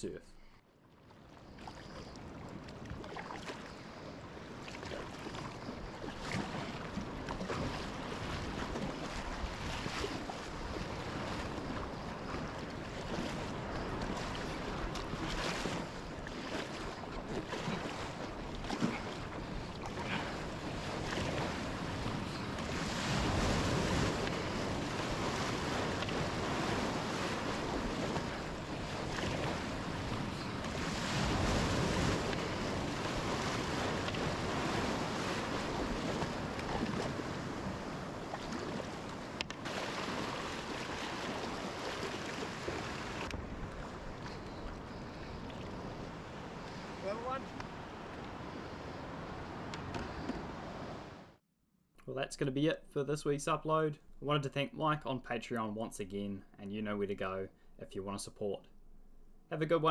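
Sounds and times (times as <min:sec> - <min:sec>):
water rushing along kayak: 0:00.8 - 0:51.4
paddle splashes: 0:00.9 - 0:51.2
surf breaking: 0:04.6 - 0:48.6
wind on microphone: 0:05.3 - 0:51.3.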